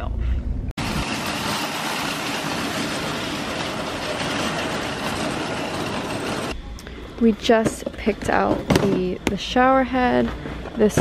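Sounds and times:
shopping cart rattling on asphalt: 0.8s - 6.6s.

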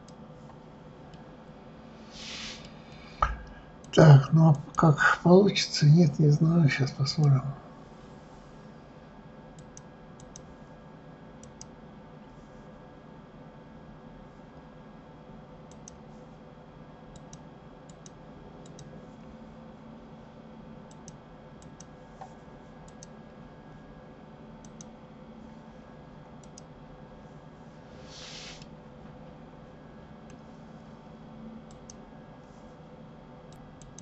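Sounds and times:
steady low hum: 0.0s - 34.0s
short hiss: 2.1s - 2.7s, 28.0s - 28.6s
computer mouse clicks: 9.6s - 10.5s, 11.4s - 11.8s, 15.7s - 16.0s, 17.1s - 18.9s, 20.9s - 23.2s, 24.6s - 25.0s, 26.4s - 26.7s, 31.7s - 32.0s, 33.5s - 34.0s.

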